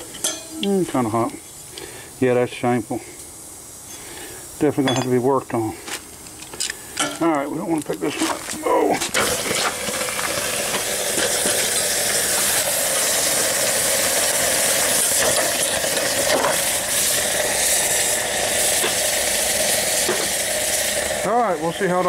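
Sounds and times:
hot metal hissing in water: 0:09.0 - 0:22.0.

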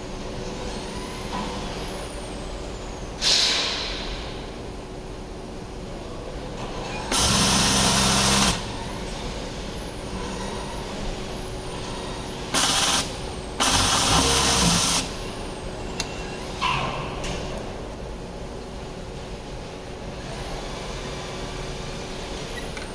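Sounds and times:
compressed air hissing: 0:12.5 - 0:15.1.

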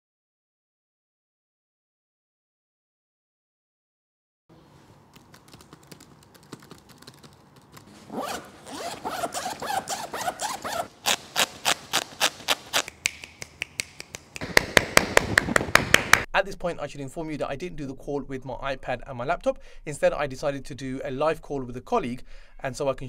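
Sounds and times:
tapping on laptop keyboard: 0:05.2 - 0:07.9
backpack zipper pulled: 0:07.9 - 0:12.9
sharp hand claps: 0:12.8 - 0:16.3.

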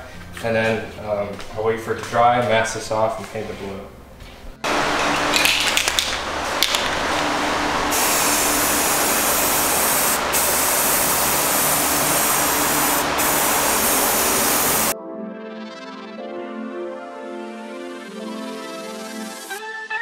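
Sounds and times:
spray paint can hissing: 0:07.9 - 0:15.0.

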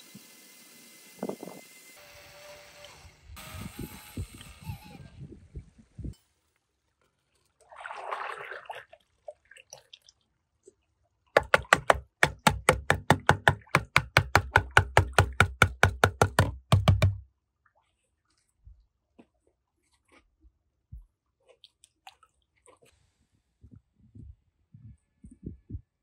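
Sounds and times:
rapid even knocking: 0:11.4 - 0:17.2.

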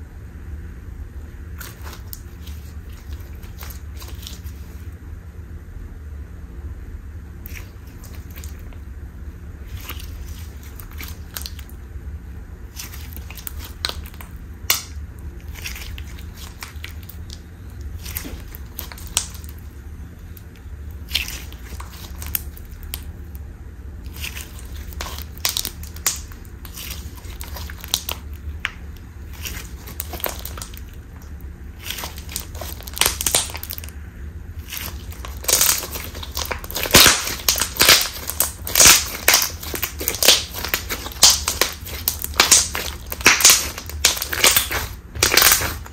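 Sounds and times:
slime being squeezed: 0:01.6 - 0:04.8, 0:07.4 - 0:08.8, 0:09.6 - 0:11.8, 0:12.7 - 0:23.4, 0:24.0 - 0:33.9, 0:34.6 - 0:45.9
air popping in slime: 0:12.7 - 0:19.7, 0:24.0 - 0:31.2, 0:31.8 - 0:33.9, 0:34.6 - 0:45.9.

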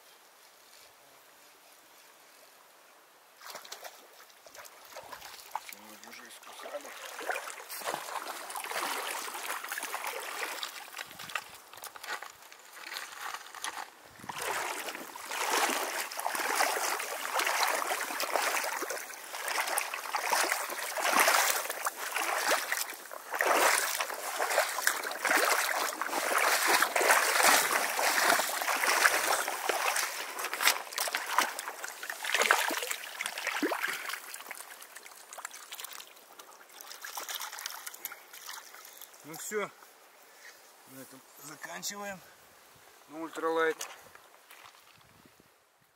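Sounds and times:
river gurgling over stones: 0:05.5 - 0:11.9, 0:14.0 - 0:38.1.

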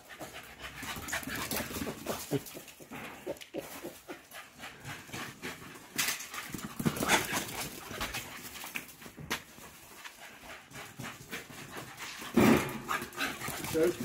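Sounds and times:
dogs scrabbling and scuffling: 0:00.0 - 0:14.0
dog vocal noises: 0:10.2 - 0:14.0.

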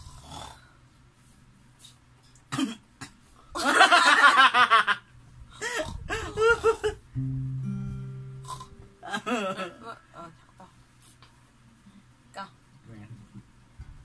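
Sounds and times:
man laughing heartily: 0:03.6 - 0:05.0, 0:05.6 - 0:07.0, 0:09.0 - 0:10.3
people laughing: 0:03.6 - 0:05.0, 0:09.0 - 0:10.3
low acoustic guitar note: 0:07.2 - 0:09.5.

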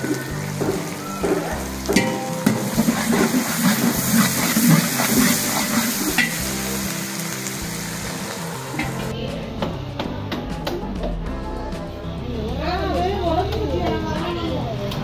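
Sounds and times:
meat sizzling in a pan: 0:00.0 - 0:09.3.

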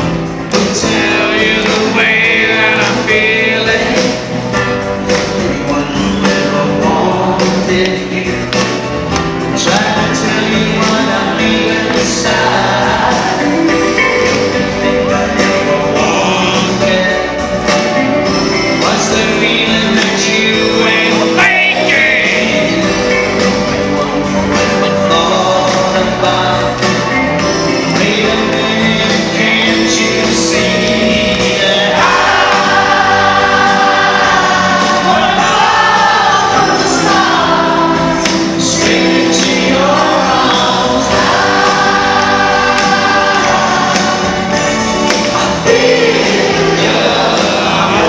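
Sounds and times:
crowd singing along: 0:00.0 - 0:48.0
pop band playing a ballad: 0:00.0 - 0:48.0.

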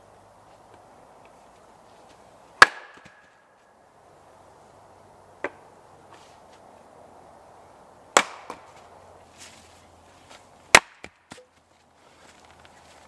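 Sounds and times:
hatchet chopping wood: 0:02.6 - 0:03.2, 0:08.1 - 0:08.7, 0:10.7 - 0:11.5.

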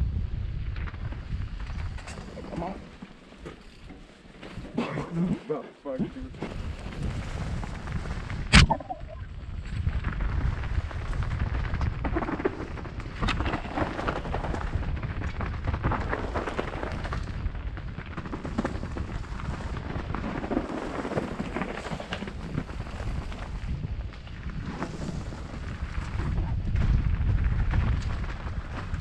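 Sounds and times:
wind rumble on microphone: 0:00.0 - 0:03.9, 0:06.0 - 0:29.0
bike rattling and knocking: 0:09.5 - 0:24.9.

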